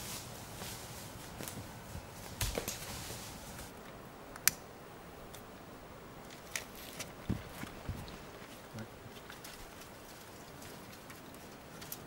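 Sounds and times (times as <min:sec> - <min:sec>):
footsteps in dry leaves: 0:00.0 - 0:03.8.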